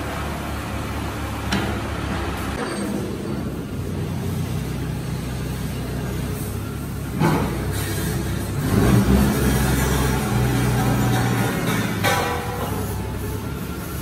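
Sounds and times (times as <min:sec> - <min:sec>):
forklift engine revving: 0:00.0 - 0:14.0.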